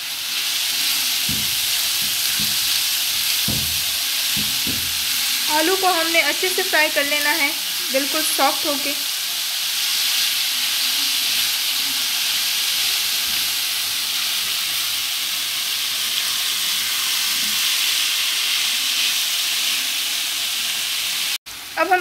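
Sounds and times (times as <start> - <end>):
potatoes sizzling in oil: 0.0 - 22.0
spatula stirring in pan: 1.2 - 5.5.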